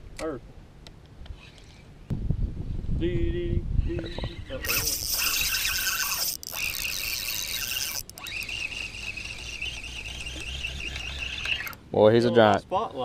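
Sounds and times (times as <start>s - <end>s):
fishing reel whirring: 4.6s - 11.8s.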